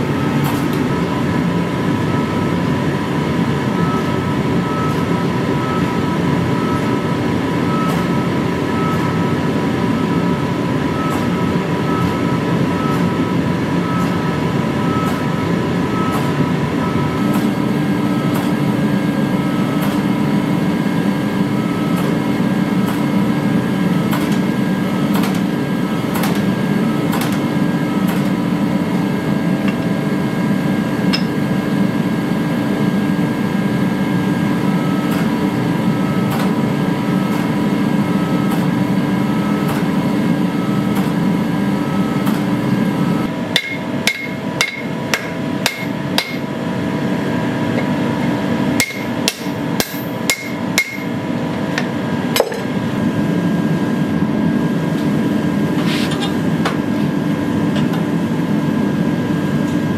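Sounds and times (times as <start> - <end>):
hammer ringing on anvil: 31.1 - 31.5, 43.5 - 46.5, 48.8 - 51.2.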